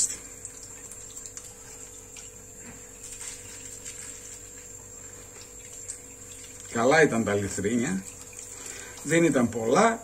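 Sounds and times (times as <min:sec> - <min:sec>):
background hum and hiss: 0:00.0 - 0:10.0.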